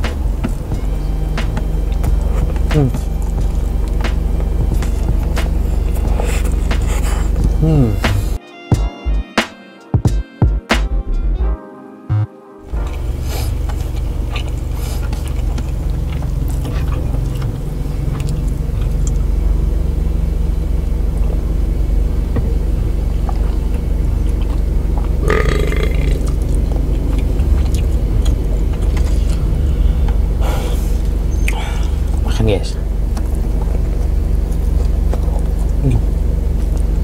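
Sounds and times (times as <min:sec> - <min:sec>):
low rumble of car: 0:00.0 - 0:08.4, 0:12.7 - 0:37.0
person chewing food: 0:01.9 - 0:08.1, 0:12.7 - 0:19.3, 0:23.2 - 0:32.2, 0:33.1 - 0:37.0
short throaty sound: 0:06.1 - 0:08.4, 0:25.2 - 0:26.3.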